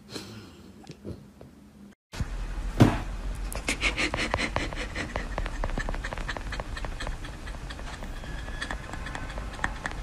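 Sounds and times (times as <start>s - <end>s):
puppy whining: 4.8s - 10.0s.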